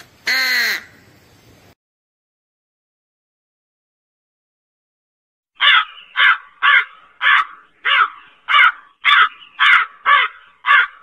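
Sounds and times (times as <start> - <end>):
crow cawing: 0.2 - 1.0, 5.6 - 11.0.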